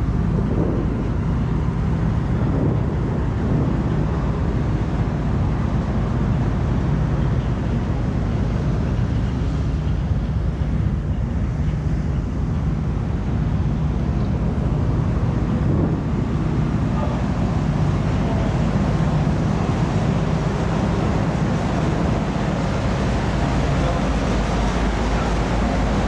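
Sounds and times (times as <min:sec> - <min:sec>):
wind rushing across microphone: 0:00.0 - 0:07.9, 0:12.6 - 0:26.0
ship engines droning: 0:00.0 - 0:26.0.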